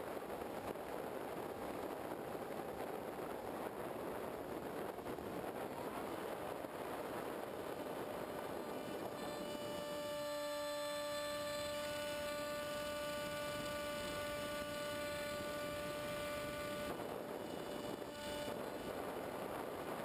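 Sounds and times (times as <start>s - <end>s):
electric motor whining: 7.5s - 19.5s.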